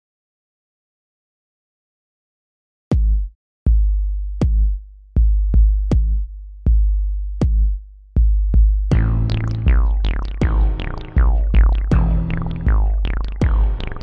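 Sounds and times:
drum machine beat: 0:02.9 - 0:14.0
synth notes: 0:08.9 - 0:14.0.

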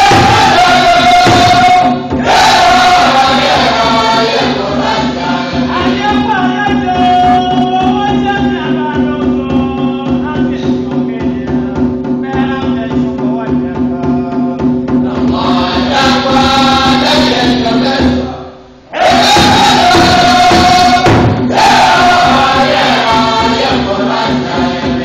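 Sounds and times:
choir singing: 0:00.0 - 0:07.0, 0:15.1 - 0:18.3, 0:18.9 - 0:25.0
steady rhythmic beat: 0:00.0 - 0:25.0.

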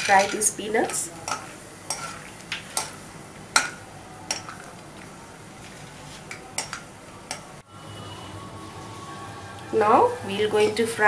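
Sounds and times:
ladle scraping against a wok: 0:00.0 - 0:03.0.

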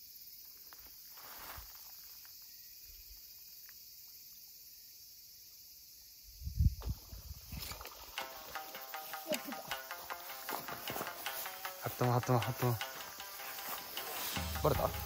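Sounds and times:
insects chirring: 0:00.0 - 0:15.0.

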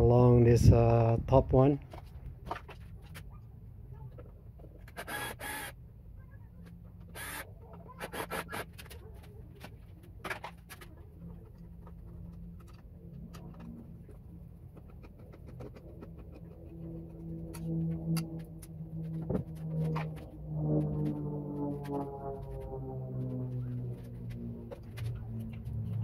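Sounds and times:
cordless drill driving screws: 0:04.9 - 0:05.7, 0:07.1 - 0:07.4
handling clicks and scrapes: 0:06.6 - 0:26.0.

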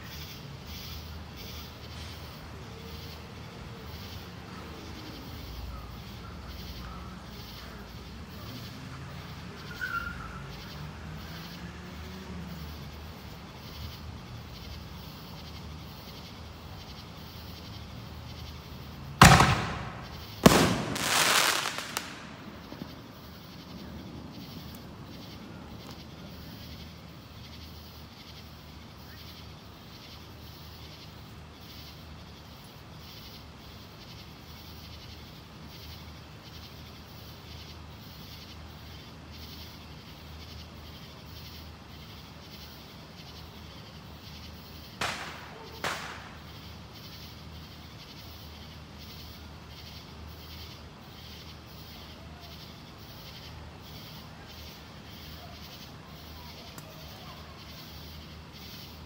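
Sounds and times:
fireworks bangs: 0:19.2 - 0:23.6, 0:45.0 - 0:46.6
fireworks crackle: 0:19.2 - 0:26.0, 0:44.9 - 0:46.7.

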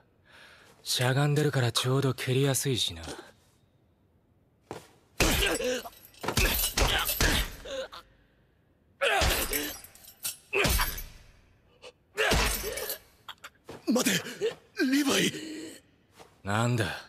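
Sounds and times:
young man grunting in pain: 0:05.2 - 0:08.0, 0:09.0 - 0:09.9, 0:12.2 - 0:15.8.

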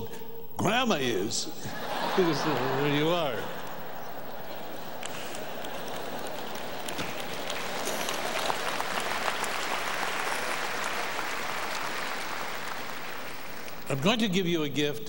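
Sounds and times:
congregation applauding: 0:01.7 - 0:14.6.

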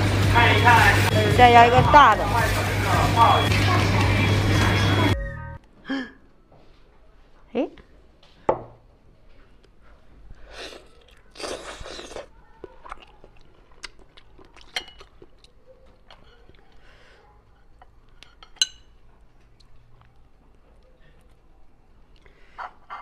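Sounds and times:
biting and chewing: 0:10.8 - 0:16.9.

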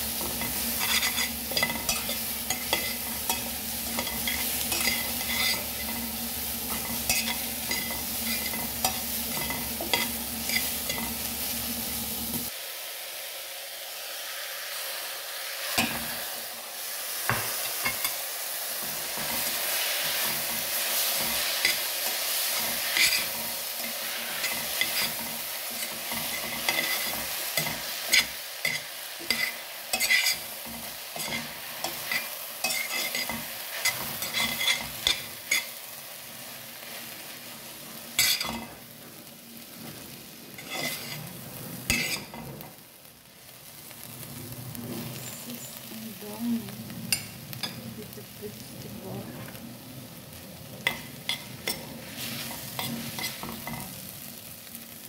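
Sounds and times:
noodles sizzling in a pan: 0:00.0 - 0:55.0
utensil scraping pan: 0:00.2 - 0:11.1, 0:18.8 - 0:35.8, 0:38.2 - 0:38.8, 0:39.8 - 0:42.6, 0:50.8 - 0:53.9.

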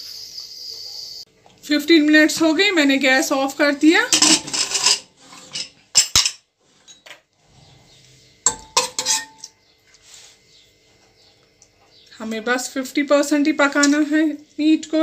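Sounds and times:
metal ladle clinking against pot: 0:04.1 - 0:05.0, 0:08.5 - 0:09.5
pressure cooker lid scraping: 0:04.1 - 0:05.8.

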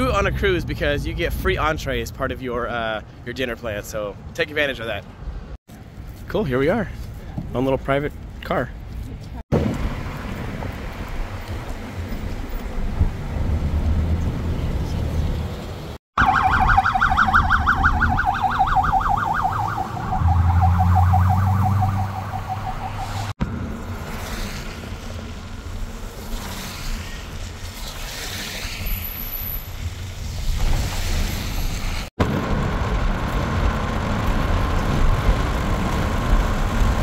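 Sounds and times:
car road noise: 0:00.0 - 0:37.0
fast-warbling electronic siren: 0:16.2 - 0:23.3.

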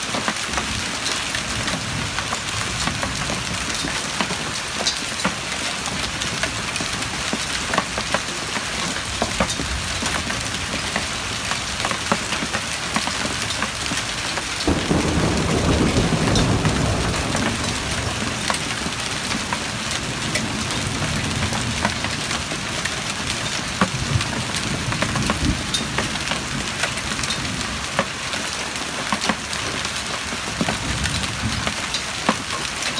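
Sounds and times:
hailstones ticking: 0:00.0 - 0:32.9
heavy rain on pavement: 0:00.0 - 0:32.9
low rumble of thunder: 0:14.6 - 0:27.9.

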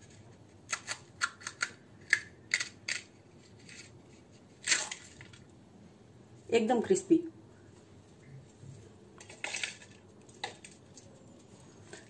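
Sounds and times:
crisp puri crackling: 0:00.0 - 0:05.6.

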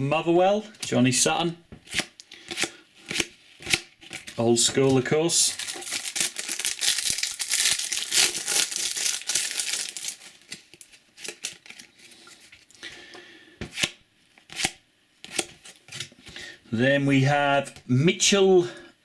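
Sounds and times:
foil wrapper crinkling: 0:04.1 - 0:12.7.

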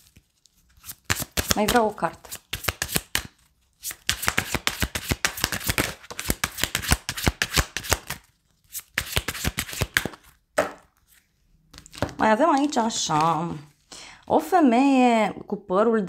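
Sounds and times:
cards being shuffled: 0:00.0 - 0:10.4, 0:11.0 - 0:13.6.

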